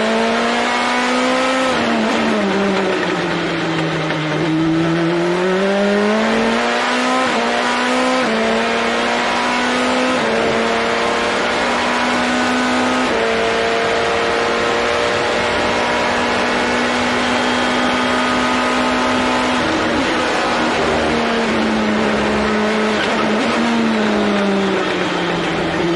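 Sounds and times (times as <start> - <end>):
racing car engine: 0.0 - 25.9.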